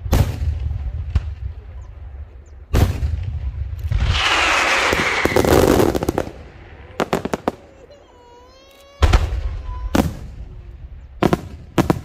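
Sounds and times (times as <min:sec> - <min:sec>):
firework hiss with falling whistle: 0:04.0 - 0:06.0.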